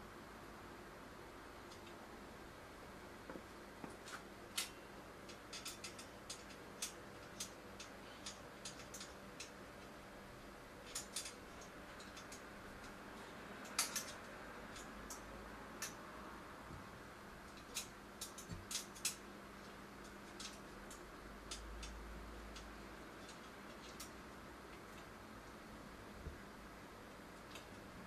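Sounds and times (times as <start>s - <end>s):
faint steady hum: 0.0s - 28.0s
metal parts and tools clicking: 4.5s - 9.9s, 10.8s - 13.0s, 13.6s - 16.0s, 17.5s - 19.3s, 20.0s - 25.1s.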